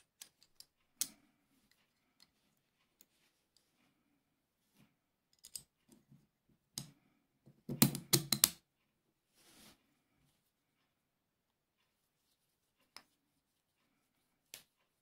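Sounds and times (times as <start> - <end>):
metal parts clicking: 0.0 - 1.2
soft rustle: 0.8 - 5.2, 9.2 - 11.0, 11.7 - 15.0.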